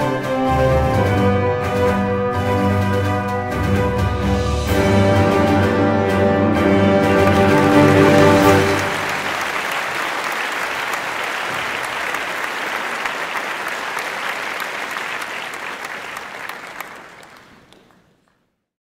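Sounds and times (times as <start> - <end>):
crowd cheering and applauding: 6.9 - 18.2.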